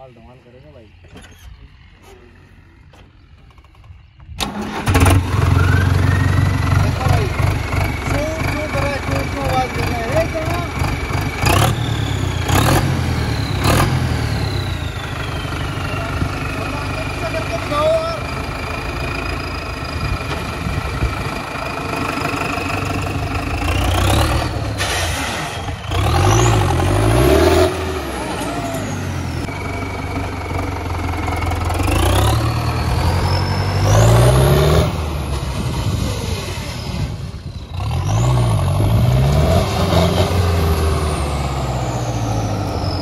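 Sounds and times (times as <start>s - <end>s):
tractor diesel engine revving: 0.8s - 43.0s
high whistle: 5.5s - 6.5s.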